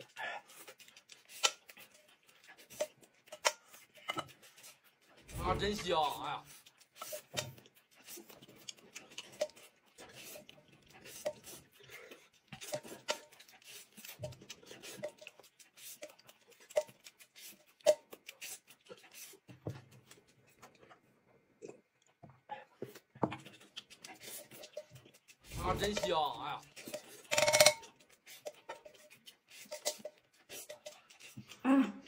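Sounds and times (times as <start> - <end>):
chewing and mouth noises: 0.0 - 32.0
chopsticks tapping dishes: 25.6 - 28.9.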